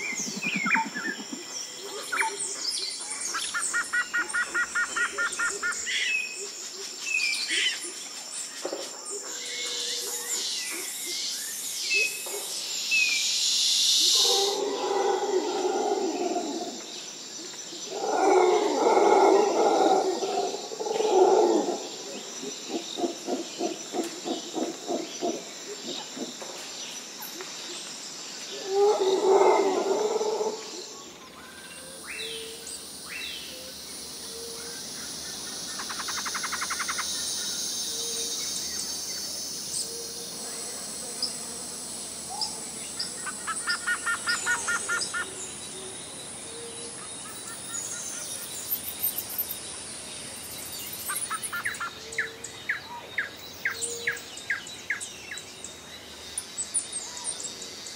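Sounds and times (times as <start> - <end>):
steady high hiss: 30.4 - 57.9.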